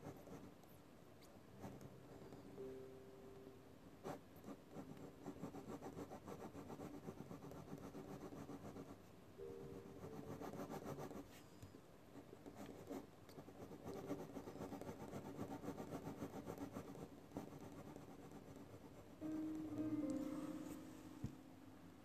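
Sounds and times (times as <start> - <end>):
pencil scratching on paper: 0.0 - 0.5, 4.0 - 9.0, 9.9 - 11.4, 12.4 - 19.2.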